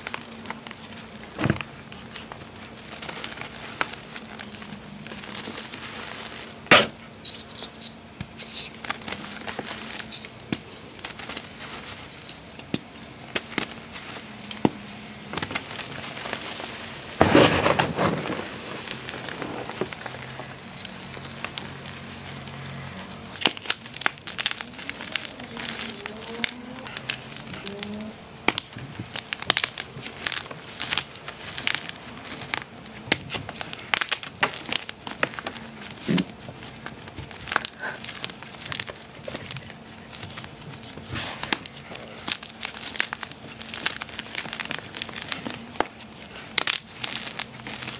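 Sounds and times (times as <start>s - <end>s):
chalk crunching and crackling: 1.9s - 47.9s.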